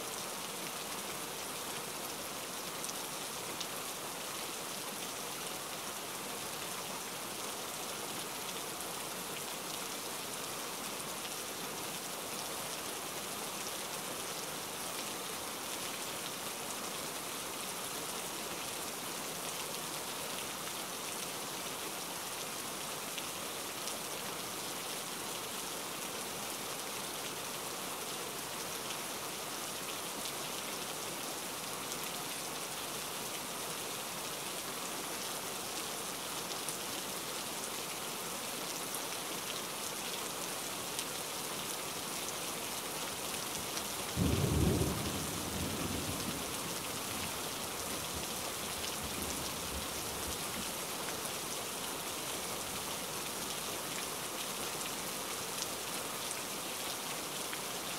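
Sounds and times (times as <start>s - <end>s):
steady rain falling: 0.0s - 57.9s
low rumble of thunder: 44.2s - 46.7s.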